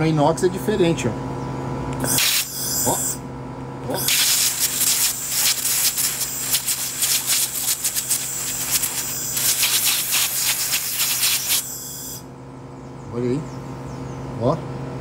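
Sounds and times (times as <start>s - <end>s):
low machine hum: 0.0s - 15.0s
laser welder hissing crackle: 2.0s - 3.2s, 4.0s - 12.2s.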